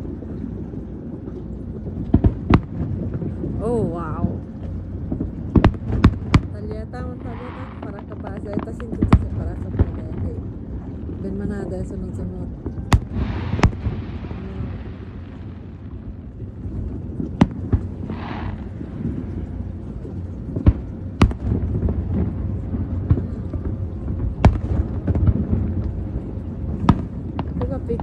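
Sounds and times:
steady low rumble: 0.0 - 28.0
fireworks exploding: 5.1 - 11.4, 12.4 - 28.0
firework hiss: 12.9 - 15.8, 17.9 - 19.2.

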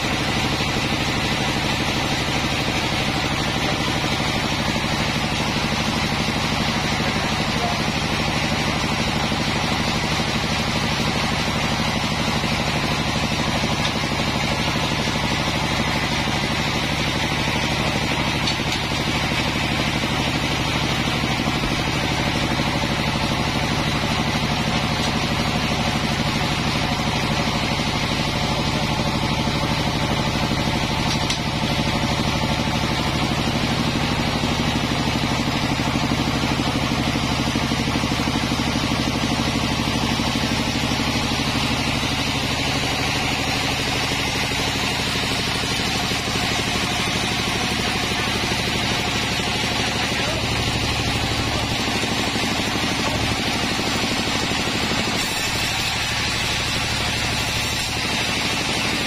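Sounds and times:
sawmill machinery droning: 0.0 - 59.0.

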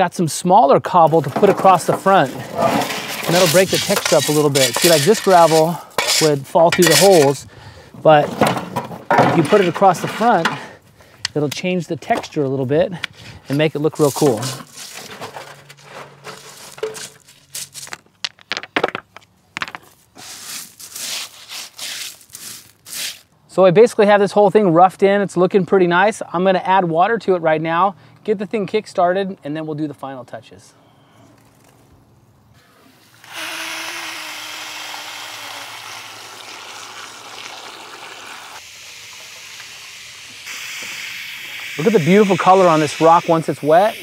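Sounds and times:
gritty stone scrape: 1.0 - 7.5, 13.3 - 18.6, 19.6 - 23.3
hose water pouring onto rocks: 1.1 - 7.4, 33.2 - 44.0
stones clicking and rattling: 16.5 - 20.0.

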